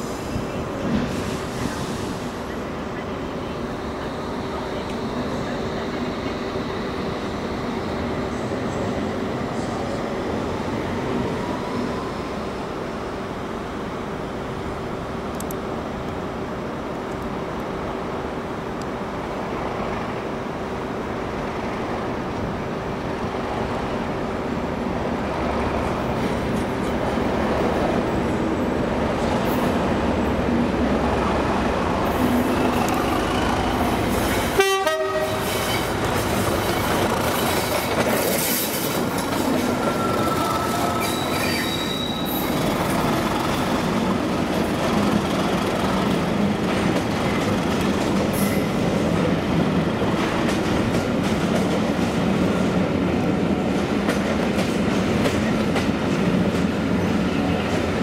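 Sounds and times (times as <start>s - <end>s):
train horn toot: 34.5s - 35.7s
train wheels clattering and squealing: 35.2s - 44.0s, 44.7s - 49.2s.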